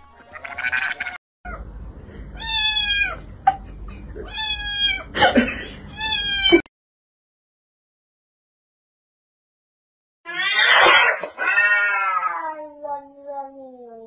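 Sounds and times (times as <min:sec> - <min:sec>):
cat meowing loudly: 0:00.2 - 0:01.6, 0:02.4 - 0:03.2, 0:04.3 - 0:05.1, 0:05.9 - 0:06.6, 0:10.3 - 0:12.6
cat short cry: 0:10.3 - 0:12.4.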